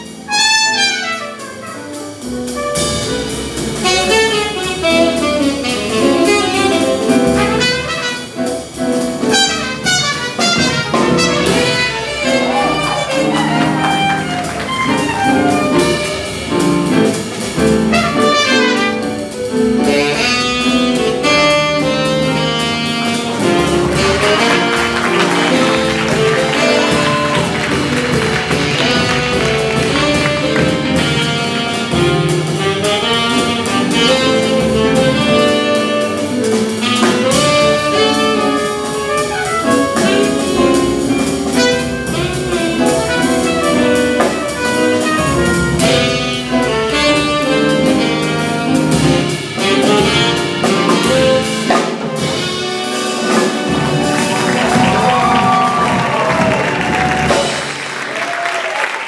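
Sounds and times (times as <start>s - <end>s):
drum kit with cymbals: 0.0s - 58.7s
piano: 0.0s - 59.0s
trumpet: 0.0s - 59.0s
upright bass: 1.8s - 57.8s
tenor saxophone: 3.8s - 8.4s, 17.8s - 57.6s.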